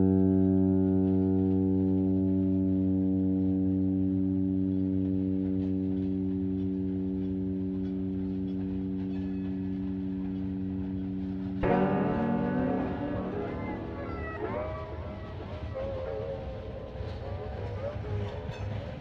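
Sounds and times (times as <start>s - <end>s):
electronic drone note: 0.0s - 17.7s
electronic note with sliding pitches: 11.6s - 17.2s.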